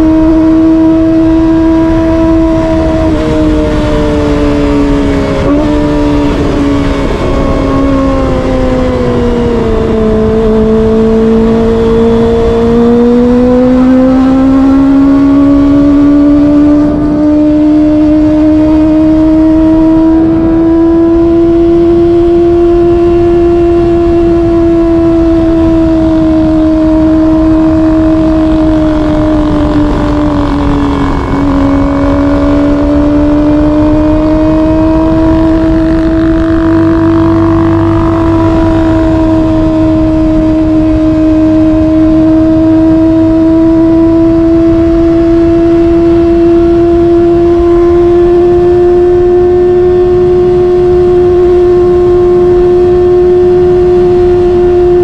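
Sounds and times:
motorcycle engine at high revs: 0.0 - 55.0
wind on microphone: 0.0 - 55.0.

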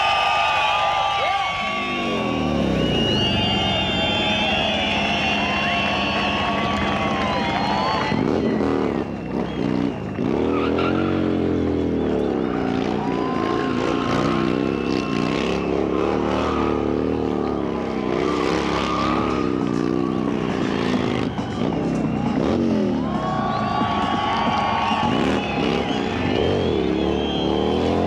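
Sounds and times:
motorcycle engine revving high: 1.5 - 28.0
tyre squealing on tarmac: 10.4 - 11.5.

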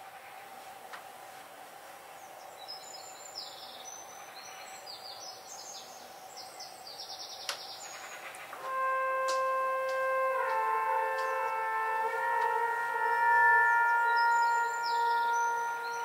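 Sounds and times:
steady hiss: 0.0 - 13.2
birds chirping: 2.0 - 16.0
faint steady tone: 8.6 - 16.0.

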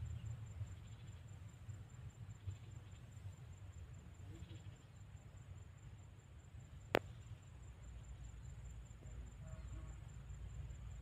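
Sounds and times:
faint high-pitched whine: 0.0 - 11.0
low outdoor rumble: 0.0 - 11.0.

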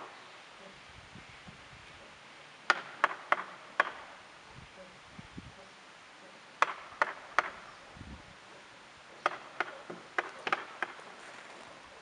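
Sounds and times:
sharp knocks on tree trunk: 2.7 - 4.1, 6.6 - 7.6, 9.2 - 11.1.

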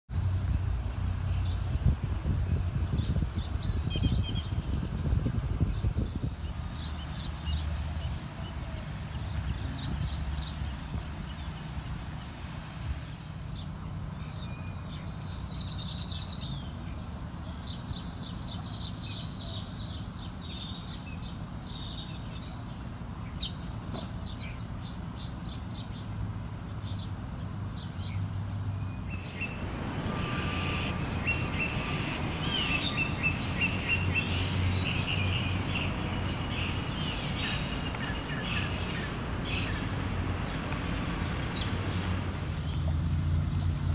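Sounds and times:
small birds chirping: 27.8 - 42.9
low outdoor rumble: 29.1 - 43.9.

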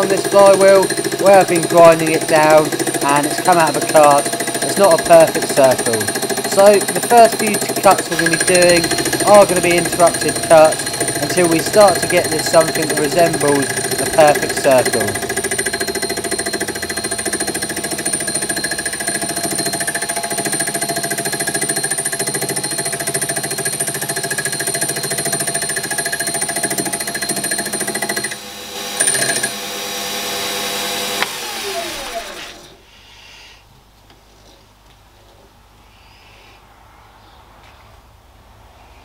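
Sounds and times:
lathe tool knocking on metal: 0.0 - 28.4
lathe motor whine: 0.0 - 32.8
lathe spinning down: 0.0 - 32.8.

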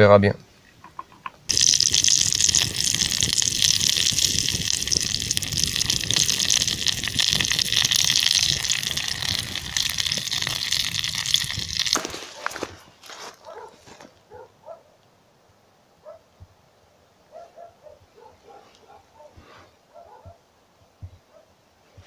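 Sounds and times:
campfire crackling: 1.4 - 13.9.

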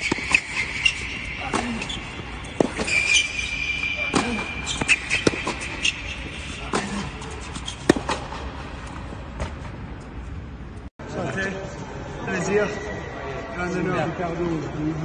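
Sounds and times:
ball bouncing on court: 0.0 - 3.3, 4.0 - 8.5
racket hitting tennis ball: 0.0 - 9.7
shoes squeaking on court: 0.0 - 10.1.

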